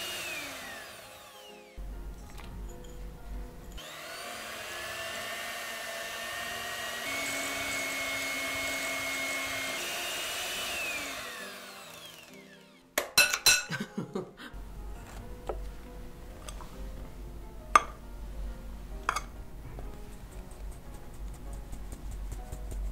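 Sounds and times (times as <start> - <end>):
electric hand mixer whining: 0.0 - 2.4, 3.8 - 13.0.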